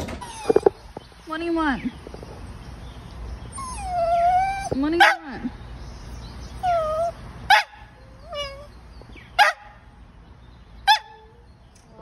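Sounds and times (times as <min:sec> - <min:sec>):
dog whining: 0:00.1 - 0:00.8, 0:03.5 - 0:04.8, 0:06.5 - 0:07.2, 0:08.0 - 0:08.7
dog barking: 0:07.5 - 0:07.8, 0:09.4 - 0:09.8, 0:10.9 - 0:11.3.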